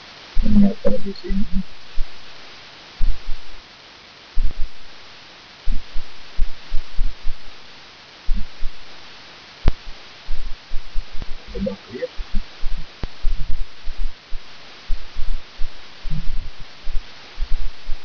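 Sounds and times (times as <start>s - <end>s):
steady hiss: 0.0s - 18.0s
muffled thumps on microphone: 3.0s - 3.5s, 4.4s - 4.8s, 5.7s - 7.4s, 8.3s - 8.8s, 9.7s - 18.0s.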